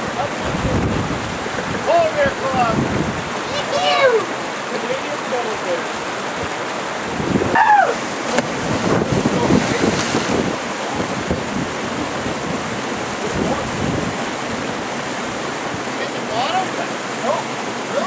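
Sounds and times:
wind buffeting microphone: 0.0 - 4.0, 6.3 - 16.0
water splashing and churning: 0.0 - 18.0
person shouting: 7.5 - 8.0.

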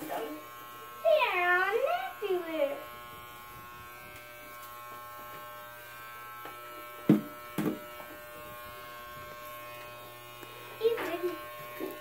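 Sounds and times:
electric hair clippers buzzing: 0.0 - 12.0.

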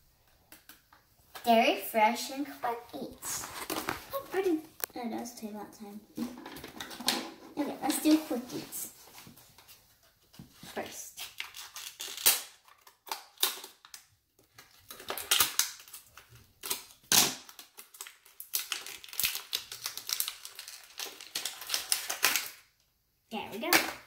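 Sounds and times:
foil packet crinkling: 3.3 - 4.9, 10.8 - 22.7.

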